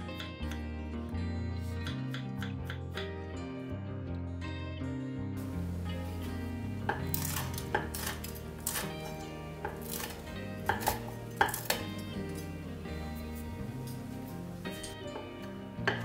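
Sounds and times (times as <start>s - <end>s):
knife chopping on wooden board: 6.8s - 9.0s, 9.6s - 12.5s, 15.1s - 16.0s.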